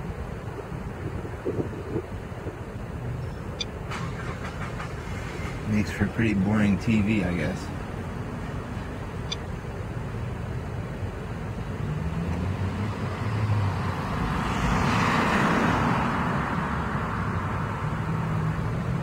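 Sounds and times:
low engine hum: 0.0s - 19.0s
car passing close by: 11.8s - 19.0s.

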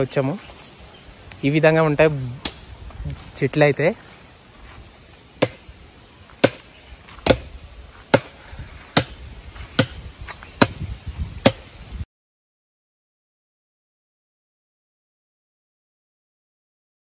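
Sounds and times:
blade chopping bamboo: 5.4s - 5.6s, 6.4s - 7.5s, 8.1s - 9.2s, 9.8s - 10.0s, 11.4s - 11.7s.

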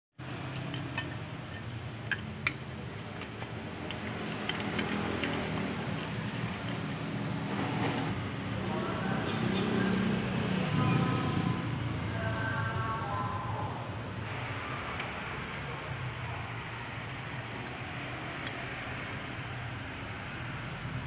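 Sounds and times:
steady background noise: 0.2s - 21.0s
clicks and clinks of metal housing: 0.4s - 7.2s.

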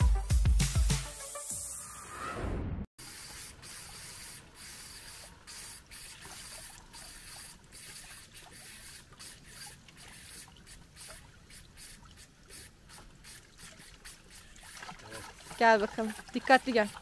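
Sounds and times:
water trickling into a bottle: 3.8s - 17.0s.

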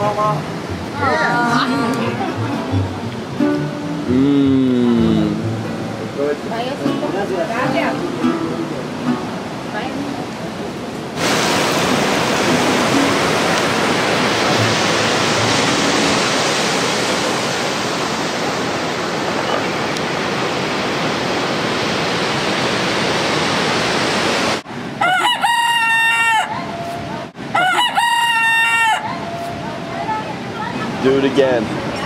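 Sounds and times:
breaking surf: 9.0s - 24.7s
rooster crowing: 25.0s - 29.5s.

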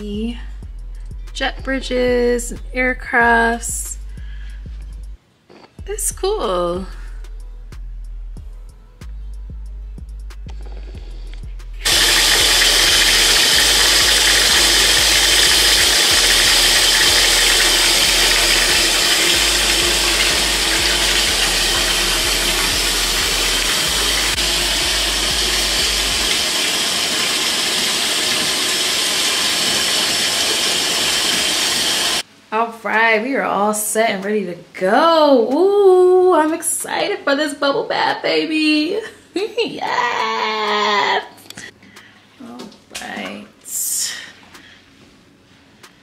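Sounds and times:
water pouring into bathtub: 11.9s - 32.2s.

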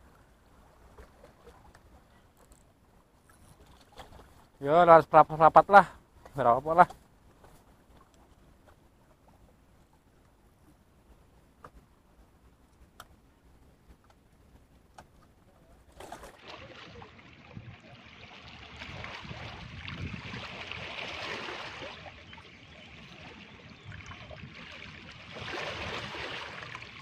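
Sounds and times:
seawater splashing against rocks: 15.8s - 27.0s.

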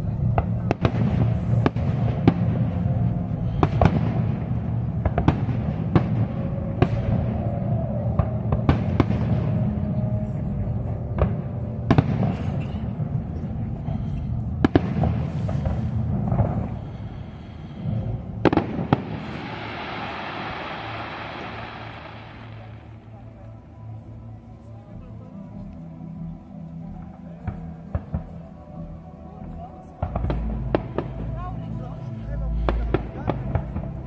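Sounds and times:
low background din: 0.0s - 34.0s
firework shells bursting: 18.5s - 23.0s.

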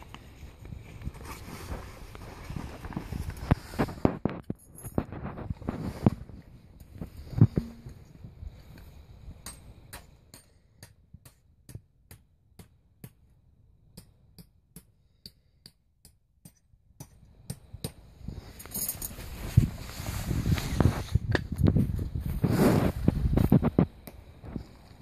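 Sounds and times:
hammer tapping metal peg: 7.6s - 8.0s.

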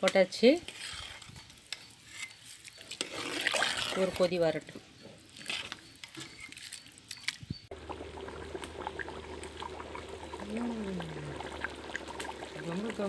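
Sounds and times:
pot boiling and bubbling: 0.7s - 13.0s.

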